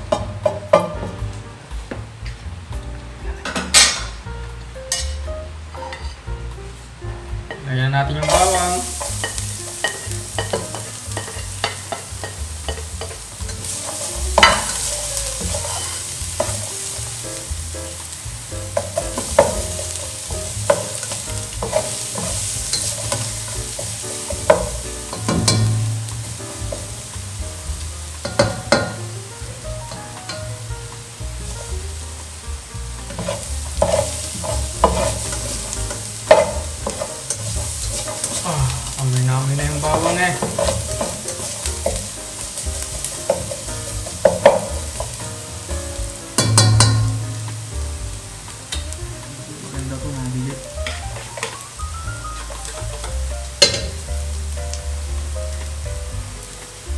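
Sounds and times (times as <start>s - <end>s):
garlic sizzling in oil: 0.0s - 56.9s
wooden spatula scraping pan: 8.2s - 16.7s, 18.8s - 27.3s, 33.0s - 38.9s, 39.6s - 45.2s.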